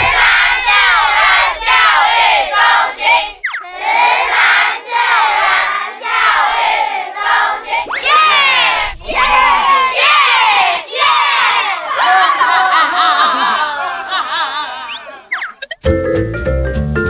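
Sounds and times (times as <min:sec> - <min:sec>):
children shouting and cheering: 0:00.0 - 0:15.3.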